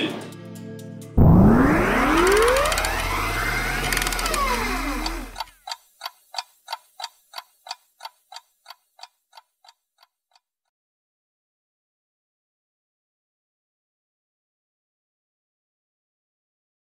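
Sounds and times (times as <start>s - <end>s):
sweeping tones gliding: 1.2s - 5.4s
pocket watch ticking: 3.9s - 10.5s.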